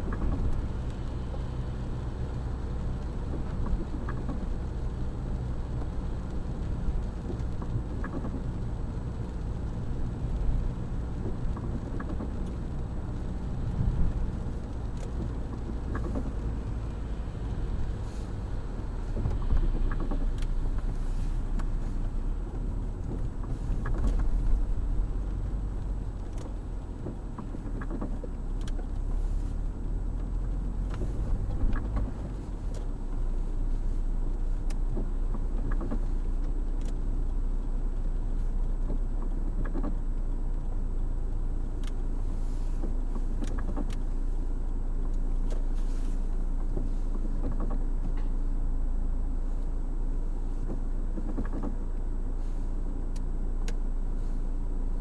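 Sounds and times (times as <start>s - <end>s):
car engine and road rumble: 0.0s - 55.0s
tyre noise on wet road: 0.0s - 55.0s
light clicks: 34.3s - 40.8s.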